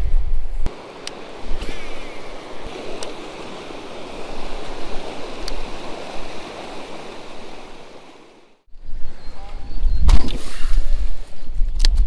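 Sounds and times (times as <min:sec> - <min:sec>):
river water rushing over a dam: 0:00.7 - 0:08.6.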